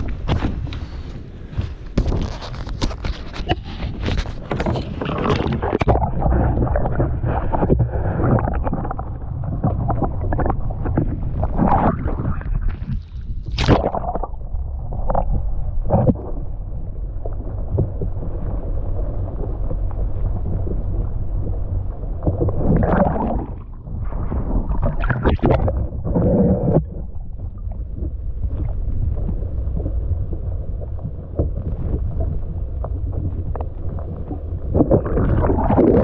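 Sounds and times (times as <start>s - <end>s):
muffled underwater rumble: 0.0s - 36.0s
water splashing: 3.2s - 14.4s, 22.5s - 27.5s, 33.0s - 36.0s
underwater gurgling: 3.2s - 36.0s.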